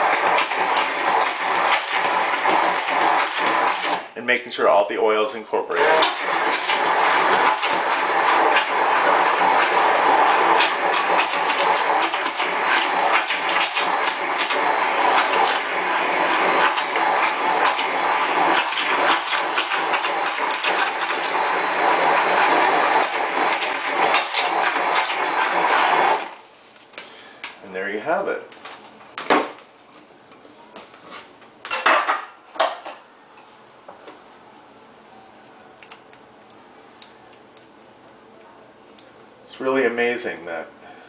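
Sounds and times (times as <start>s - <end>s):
immersion blender motor running: 0.0s - 4.1s, 5.7s - 26.4s.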